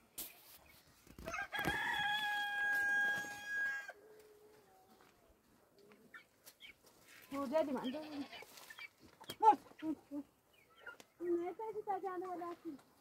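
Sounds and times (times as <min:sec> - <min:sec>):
rooster crowing: 0:01.3 - 0:04.1.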